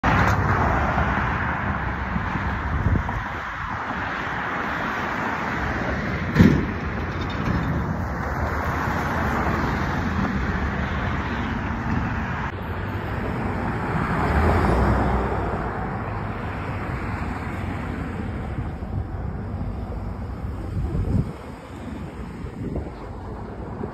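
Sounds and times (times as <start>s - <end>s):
street traffic noise: 0.0s - 23.9s.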